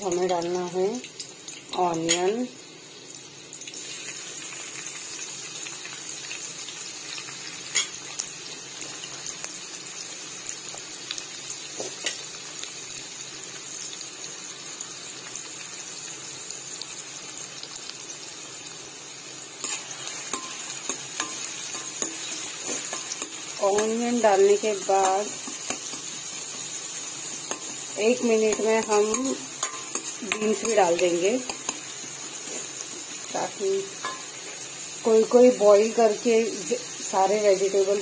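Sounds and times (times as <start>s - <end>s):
onions sizzling in hot oil: 0.0s - 38.0s
spatula scraping and knocking pan: 19.6s - 24.1s, 27.4s - 31.8s, 34.0s - 34.4s.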